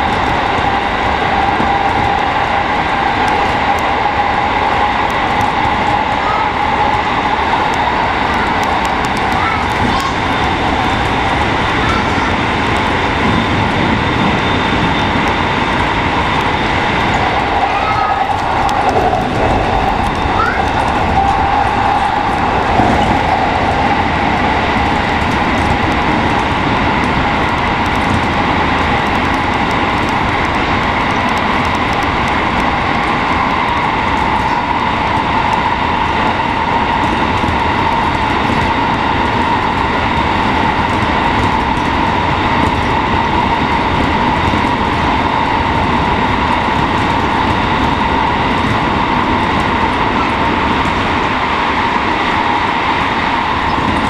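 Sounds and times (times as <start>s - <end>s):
steady high whine: 0.0s - 54.0s
train wheels roaring on rail: 0.0s - 54.0s.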